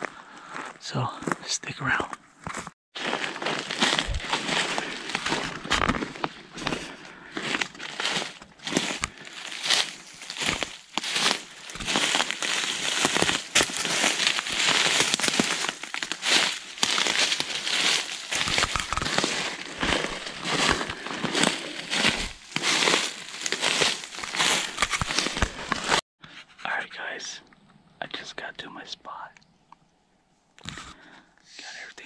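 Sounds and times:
footsteps crunching through leaves: 0:03.0 - 0:26.0.

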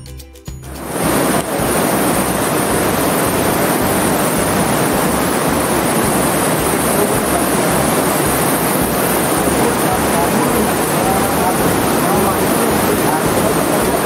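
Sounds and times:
loud rushing noise: 0:00.7 - 0:14.0
low rumble: 0:00.7 - 0:14.0.

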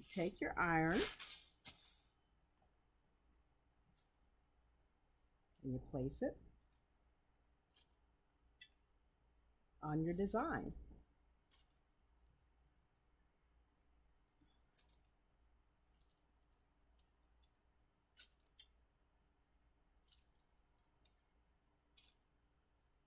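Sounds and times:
parchment paper crinkling under iron: 0:00.0 - 0:02.1, 0:14.7 - 0:15.1, 0:18.1 - 0:18.7, 0:20.0 - 0:22.3.

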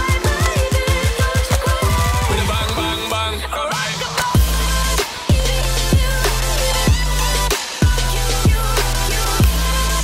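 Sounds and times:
music with heavy beat: 0:00.0 - 0:10.0.

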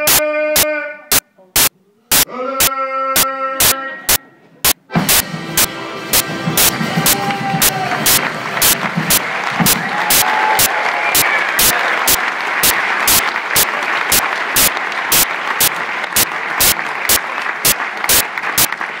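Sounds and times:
audience applauding and cheering: 0:05.1 - 0:19.0
loud hand claps close by: 0:06.1 - 0:19.0.

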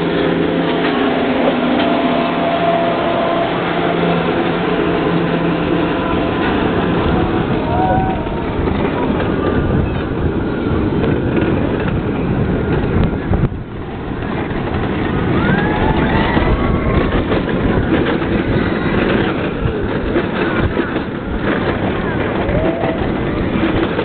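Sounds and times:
wind buffeting microphone: 0:04.0 - 0:24.0.

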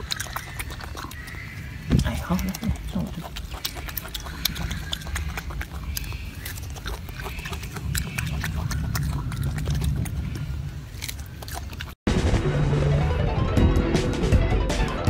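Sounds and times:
monkey chewing and smacking: 0:00.0 - 0:12.0.

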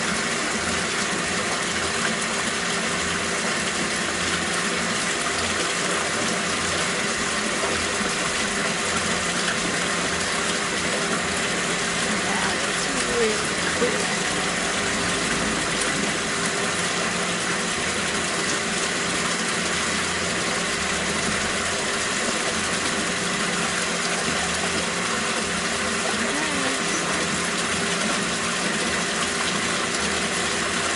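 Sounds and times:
electric pump hum: 0:00.0 - 0:30.9
water rushing: 0:00.0 - 0:30.9.

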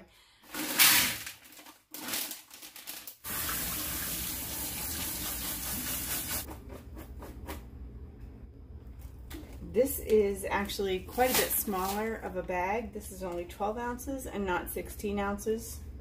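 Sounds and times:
faucet water rushing: 0:03.2 - 0:06.5.

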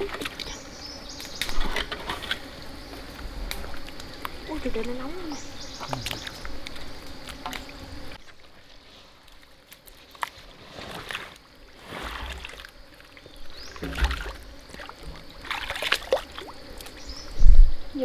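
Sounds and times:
muddy water sloshing and splashing: 0:09.3 - 0:17.0.

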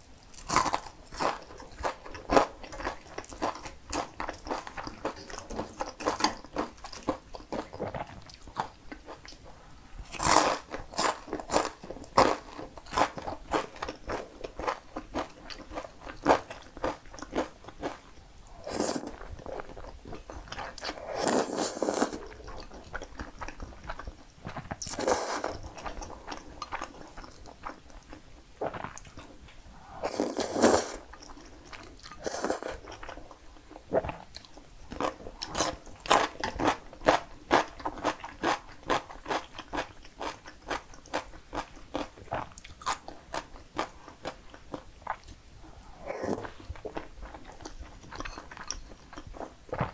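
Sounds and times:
slurping noodles: 0:24.9 - 0:25.6, 0:29.8 - 0:31.0
chewing with wet mouth clicks: 0:46.4 - 0:49.9.

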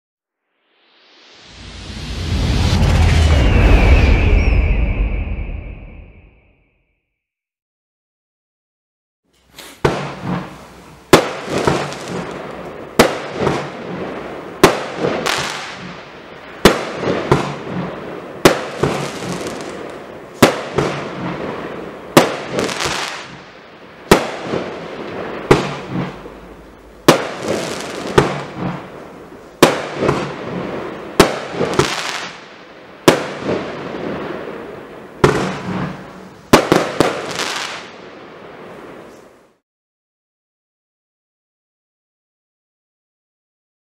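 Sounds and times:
fireworks bangs: 0:01.5 - 0:04.7, 0:09.5 - 0:39.1.

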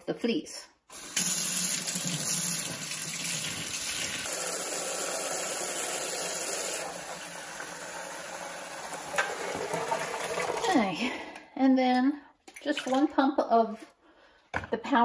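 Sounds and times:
faucet water running into sink: 0:00.9 - 0:10.8.

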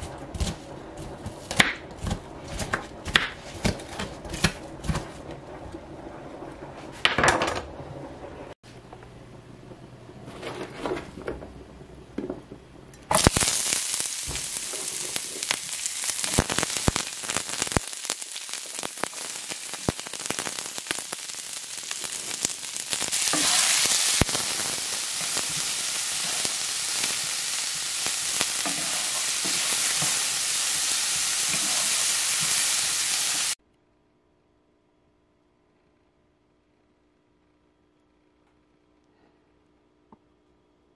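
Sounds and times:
crackles of frying: 0:13.1 - 0:33.6
vegetables sizzling in oil: 0:13.1 - 0:33.6.

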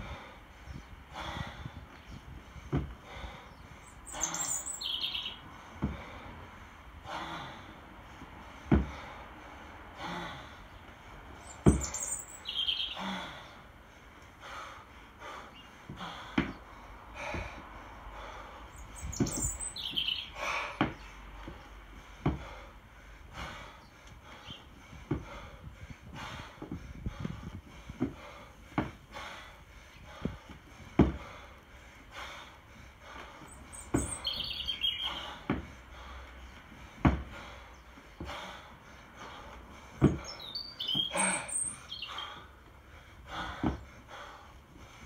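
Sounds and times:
hard breathing: 0:00.0 - 0:45.0
kettlebell dull thumps: 0:02.6 - 0:03.2, 0:05.8 - 0:06.2, 0:08.2 - 0:09.1, 0:11.6 - 0:12.0, 0:15.9 - 0:17.7, 0:19.0 - 0:19.6, 0:20.8 - 0:22.7, 0:25.0 - 0:29.3, 0:30.1 - 0:31.4, 0:33.0 - 0:34.2, 0:35.2 - 0:37.6, 0:38.2 - 0:38.5, 0:39.3 - 0:41.4, 0:43.3 - 0:44.2
bird chirping: 0:03.4 - 0:05.6, 0:11.4 - 0:13.6, 0:18.7 - 0:21.7, 0:33.4 - 0:35.4, 0:40.0 - 0:42.5.

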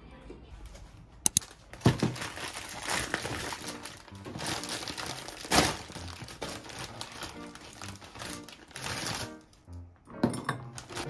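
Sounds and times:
plastic bag crinkling: 0:01.3 - 0:09.6, 0:10.8 - 0:11.0
background music: 0:02.4 - 0:11.0.

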